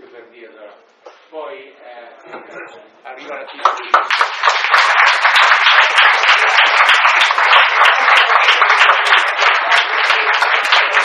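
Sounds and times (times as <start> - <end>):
audience applause: 3.6 - 11.0.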